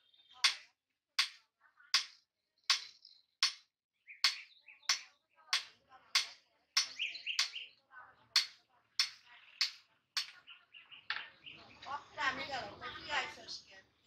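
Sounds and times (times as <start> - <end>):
hammer striking metal on anvil: 2.0 - 3.6, 4.2 - 7.6, 8.4 - 10.4.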